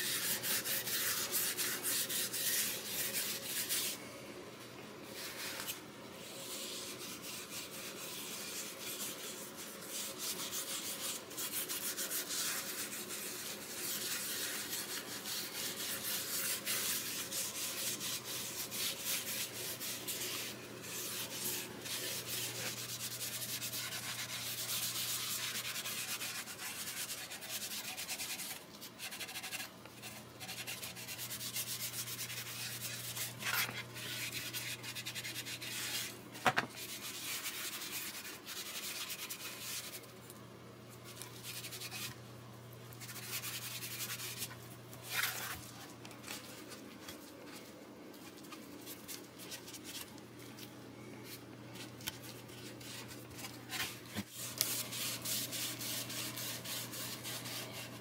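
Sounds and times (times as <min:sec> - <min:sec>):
cloth rag wiping wood: 0:06.4 - 0:36.1, 0:52.5 - 0:58.0.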